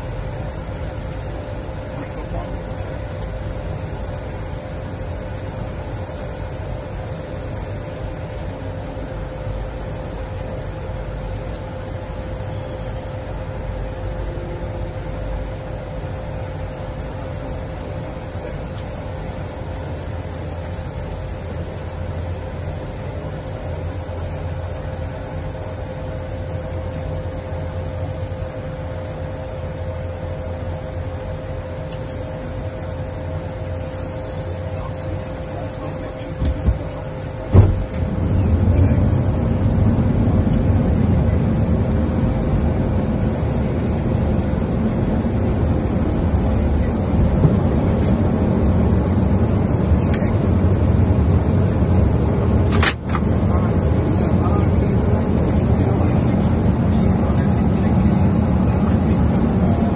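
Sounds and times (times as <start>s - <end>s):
steady hum: 0.0s - 59.9s
low rumble: 37.4s - 59.9s.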